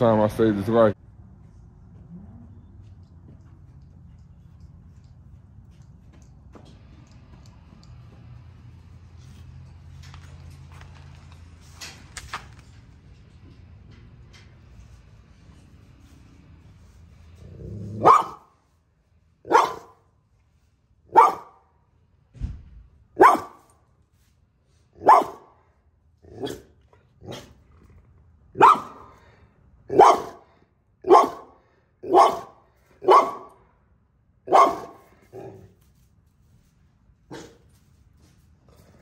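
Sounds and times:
dog barking: 0:18.0 - 0:18.5, 0:19.4 - 0:20.0, 0:21.1 - 0:21.6, 0:23.2 - 0:23.7, 0:25.0 - 0:25.5, 0:28.6 - 0:29.2, 0:29.9 - 0:33.6, 0:34.5 - 0:35.5, 0:37.3 - 0:37.6.

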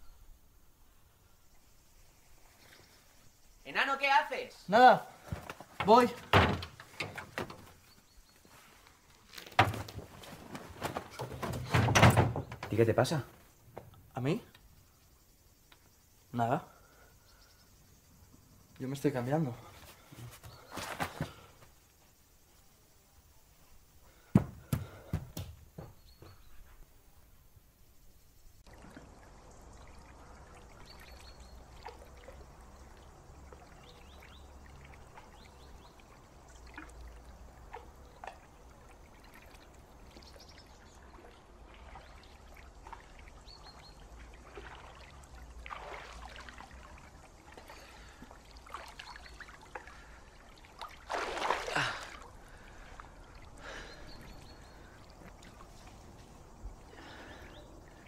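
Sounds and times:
water lapping in pool: 0:28.6 - 0:58.0
water splash: 0:40.8 - 0:53.5.

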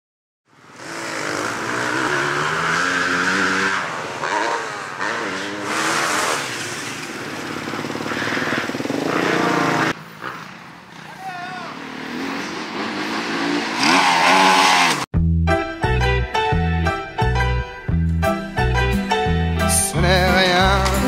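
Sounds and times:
dirt bike engines revving: 0:00.5 - 0:15.1.

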